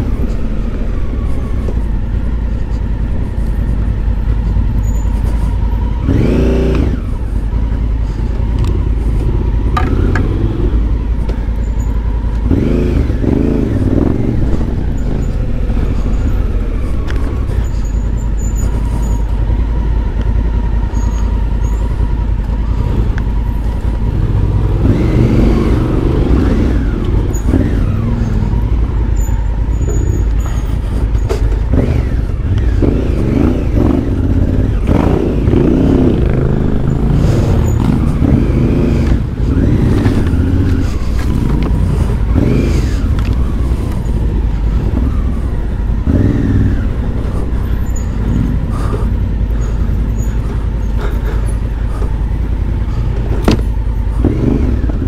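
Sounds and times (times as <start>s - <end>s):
motorcycle engine revving: 0.0s - 55.0s
motorcycle knocking over rough ground: 9.7s - 10.4s.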